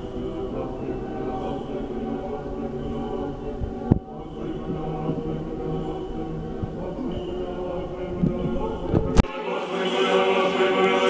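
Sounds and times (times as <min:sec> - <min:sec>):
choir chanting: 0:00.0 - 0:11.0.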